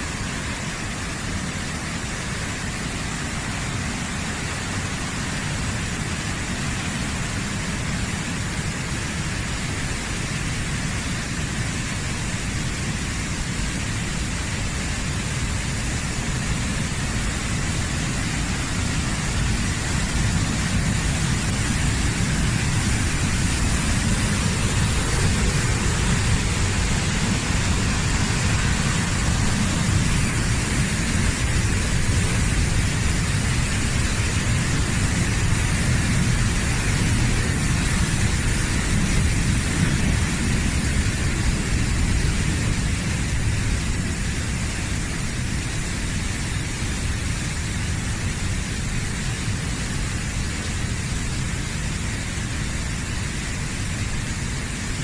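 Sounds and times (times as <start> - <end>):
stream rushing over boulders: 0.0 - 55.0.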